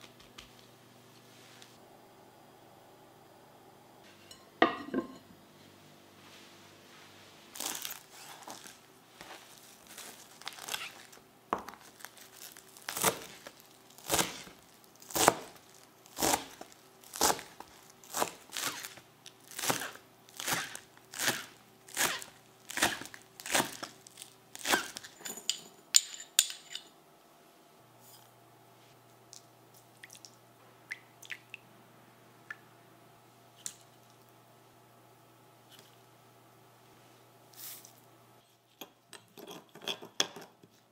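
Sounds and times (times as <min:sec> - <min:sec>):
metal spoon clinking on bowl: 0:25.2 - 0:26.9.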